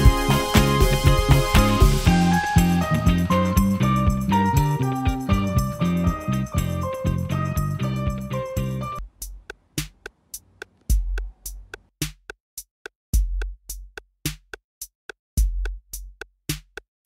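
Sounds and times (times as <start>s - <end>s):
deep kick drum: 0.0s - 7.3s, 10.9s - 11.6s, 13.2s - 14.0s, 15.4s - 16.2s
drum-machine ticks: 0.0s - 7.3s, 9.0s - 11.9s.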